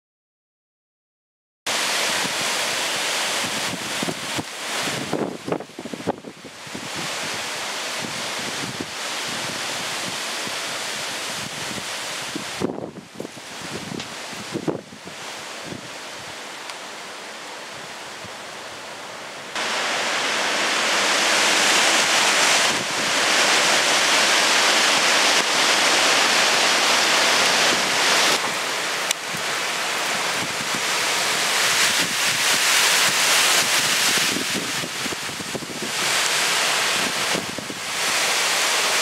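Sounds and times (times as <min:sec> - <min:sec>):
heavy rain: 0:01.7 - 0:39.0
strong wind gusting through trees: 0:01.7 - 0:39.0
wind buffeting microphone: 0:01.8 - 0:16.4, 0:19.5 - 0:39.0.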